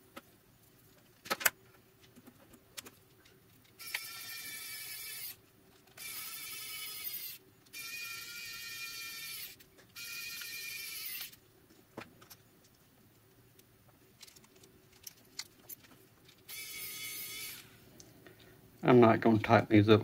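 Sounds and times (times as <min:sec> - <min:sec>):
electric screwdriver motor: 0:03.8 - 0:05.4, 0:06.0 - 0:11.4, 0:16.5 - 0:17.7.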